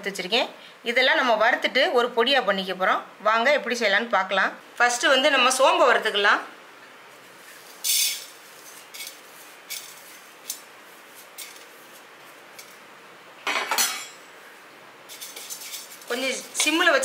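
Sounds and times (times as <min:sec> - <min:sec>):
seeds poured into metal pan: 0:07.4 - 0:11.9.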